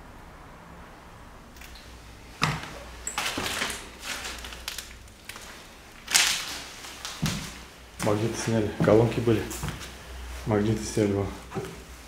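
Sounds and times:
debris crunching and scraping: 2.6s - 7.6s.

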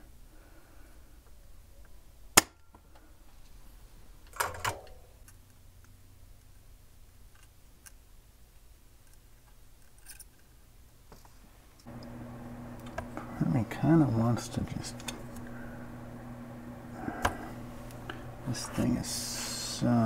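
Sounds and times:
solder sucker snapping: 17.2s - 18.4s.

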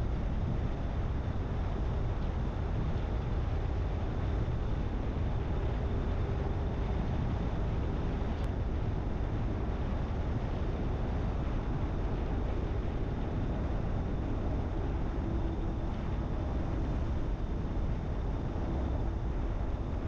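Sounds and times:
road and wind noise: 0.0s - 20.0s.

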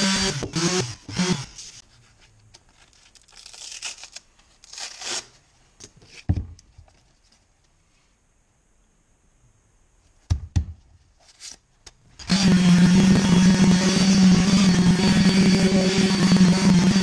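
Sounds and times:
sander motor stopping: 12.2s - 17.0s
sanding disc tearing off: 12.2s - 17.0s.

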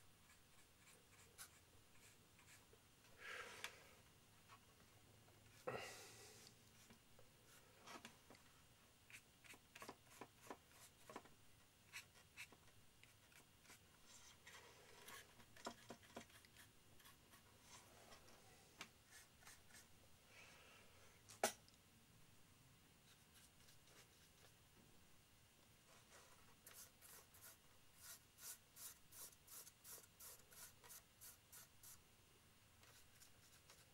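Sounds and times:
paintbrush scratchy strokes: 25.9s - 32.0s, 32.8s - 33.9s.

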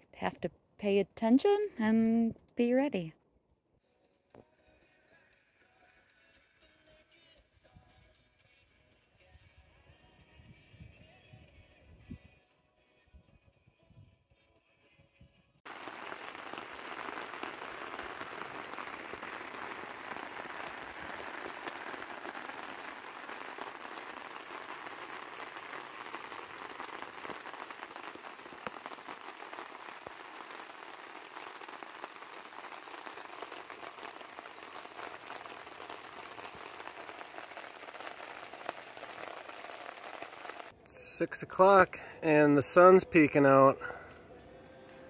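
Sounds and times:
raindrops ticking close by: 15.7s - 40.7s
steady rain: 15.7s - 40.7s.

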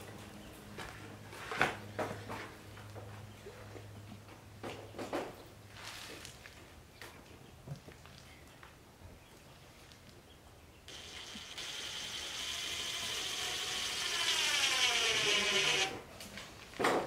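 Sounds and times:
cordless drill driving a screw: 10.9s - 16.0s.

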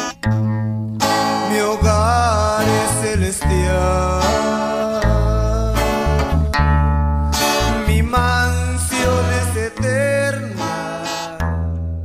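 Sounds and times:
christian song with guitar and bass: 0.0s - 12.0s.

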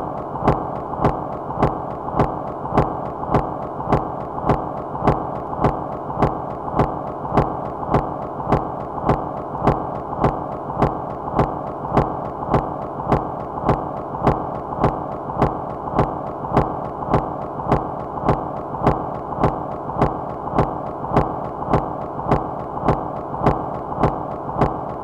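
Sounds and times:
constant noise bed: 0.0s - 25.0s
sharp rhythmic click: 0.1s - 25.0s.

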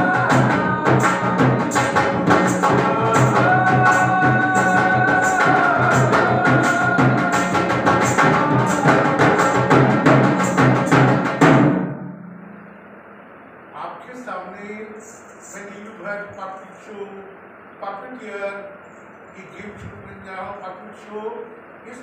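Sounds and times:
fast drum beat: 0.0s - 11.8s.

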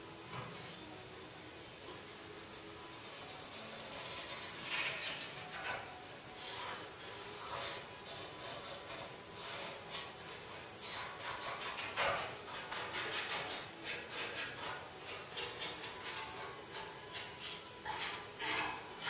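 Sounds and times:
paintbrush scrubbing on steel: 2.5s - 19.0s.

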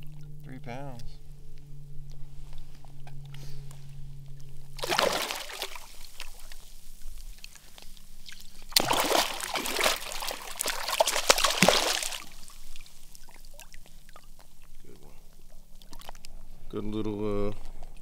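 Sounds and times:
fish splashing in water: 4.8s - 14.8s.

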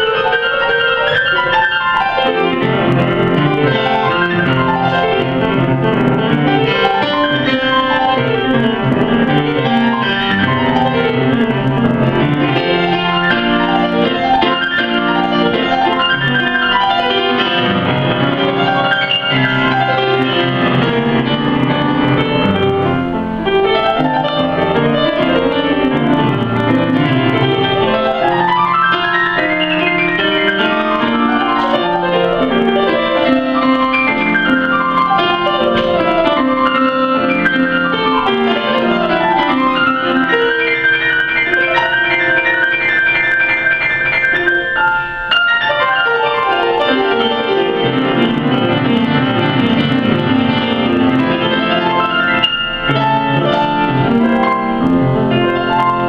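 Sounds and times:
solo classical piano piece: 0.0s - 56.0s.

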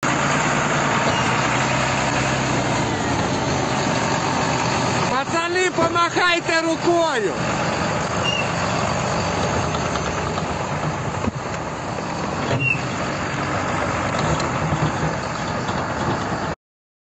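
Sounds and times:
heavy diesel engine running: 0.0s - 16.6s
brief high squeaks: 8.2s - 8.6s, 12.5s - 13.0s.

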